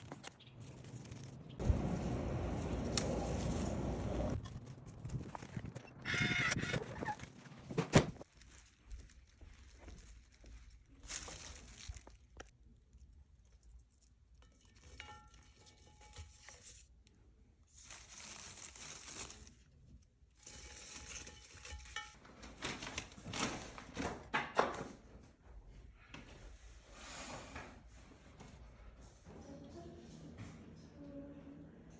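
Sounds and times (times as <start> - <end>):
rustling and crinkling of stems: 0.0 - 6.0, 6.8 - 24.0.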